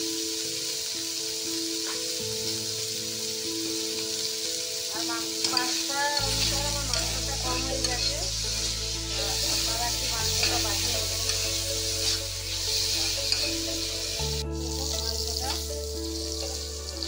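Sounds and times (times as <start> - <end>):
chicken sizzling in oil: 0.0 - 17.0
spatula scraping a metal pan: 5.4 - 14.0.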